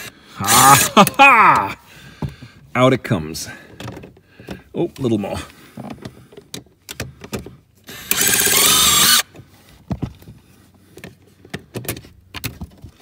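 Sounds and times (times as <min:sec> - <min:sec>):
impact driver motor whine: 0:07.9 - 0:09.3.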